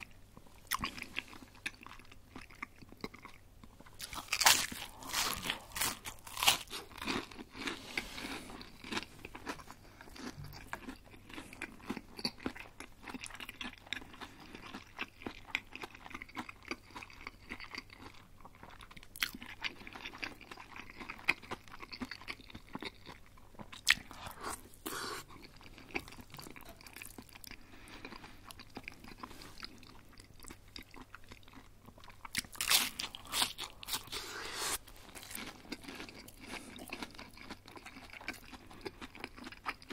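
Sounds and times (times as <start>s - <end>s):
wet chewing: 0.6s - 39.9s
crunching bites: 4.0s - 7.8s.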